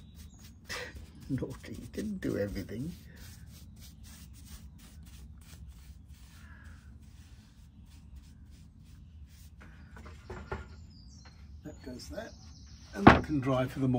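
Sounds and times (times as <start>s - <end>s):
paintbrush strokes on wood: 0.0s - 9.9s.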